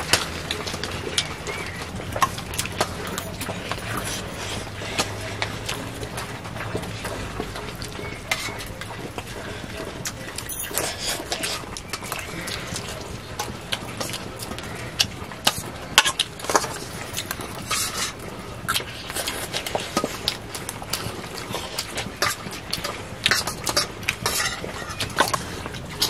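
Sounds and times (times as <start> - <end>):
metal spoon scraping steel bowl: 8.0 - 8.7, 16.0 - 18.2, 21.8 - 25.6.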